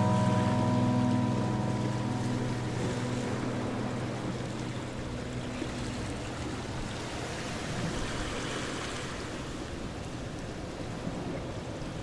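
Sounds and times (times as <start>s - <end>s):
low engine hum: 0.0s - 8.4s.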